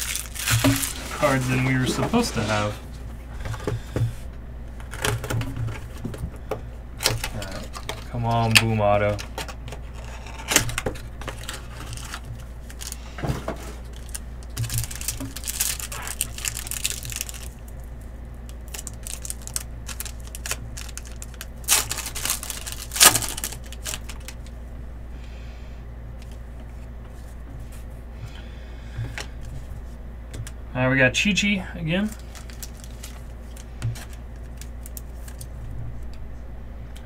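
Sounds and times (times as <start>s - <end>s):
foil wrapper tearing and crinkling: 0.0s - 1.9s, 7.0s - 13.0s, 13.8s - 17.8s, 18.5s - 24.5s, 32.0s - 35.6s
steady low hum: 0.0s - 37.0s
cards being handled: 18.7s - 24.5s, 32.0s - 35.6s.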